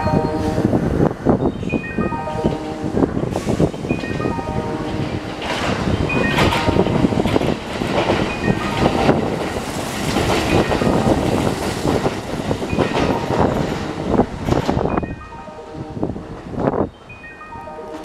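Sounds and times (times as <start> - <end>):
train passing: 0.0 - 18.0
wheels clattering on rails: 2.5 - 15.3.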